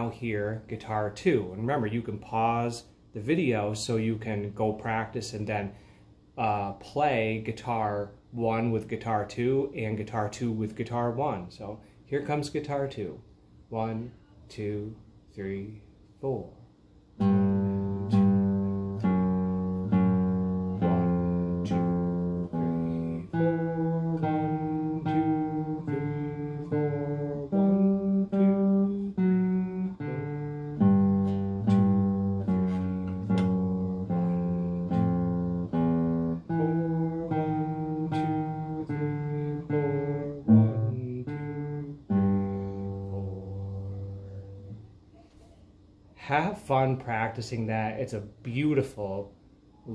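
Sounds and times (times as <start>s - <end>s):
classical guitar fingerstyle: 17.2s - 44.8s.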